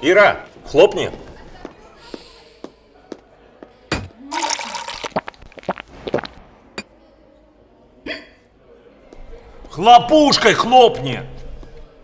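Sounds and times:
liquid pouring into shot glass: 0:04.3 - 0:06.4.

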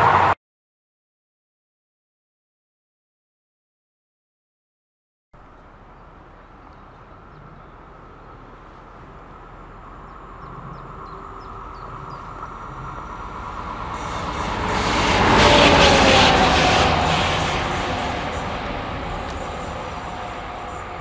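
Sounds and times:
diesel locomotive passing: 0:00.0 - 0:00.4, 0:05.4 - 0:21.0.

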